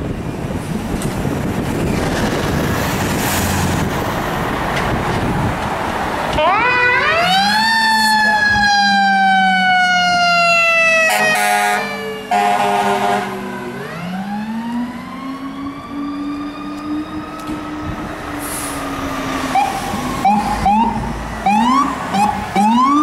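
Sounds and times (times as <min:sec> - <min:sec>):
fire engine siren: 0:06.0 - 0:23.0
horn blasts: 0:11.0 - 0:13.4.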